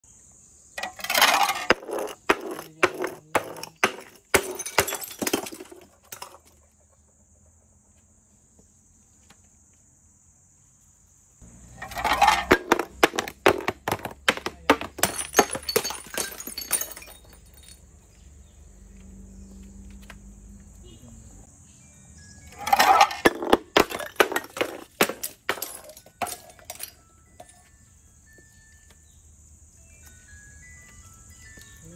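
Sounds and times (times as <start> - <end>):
glass bottles shattering: 0.8 - 6.7, 11.8 - 17.9, 22.5 - 27.7
glass shards clattering on steps: 0.8 - 6.7, 11.8 - 17.9, 22.5 - 27.7.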